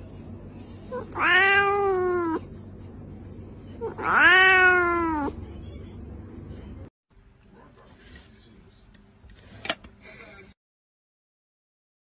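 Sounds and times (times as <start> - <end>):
cat meowing: 0.9 - 2.4, 3.8 - 5.4.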